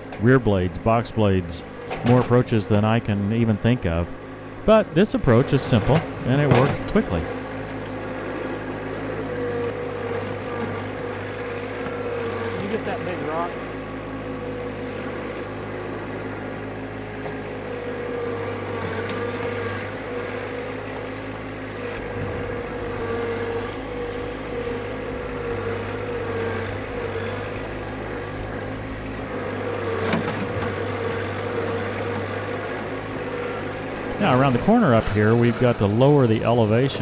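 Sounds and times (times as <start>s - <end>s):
tractor diesel engine running: 0.0s - 37.0s
wavering high whine: 33.5s - 37.0s.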